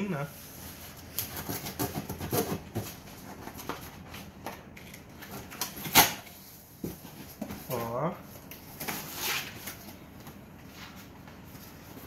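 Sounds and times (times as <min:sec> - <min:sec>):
knife cutting packing tape: 0:01.1 - 0:02.9, 0:05.3 - 0:06.3.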